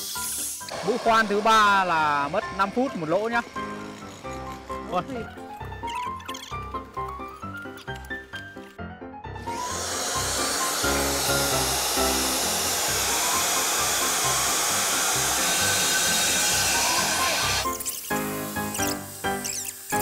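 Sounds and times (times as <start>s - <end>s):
electric core drill running: 0.0s - 6.0s, 9.4s - 20.0s.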